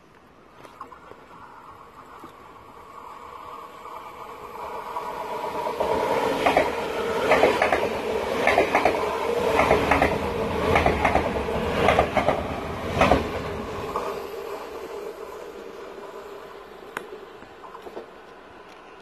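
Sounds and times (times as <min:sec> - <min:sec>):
train running hum: 0:01.0 - 0:19.0
train wheels clacking: 0:05.8 - 0:13.5.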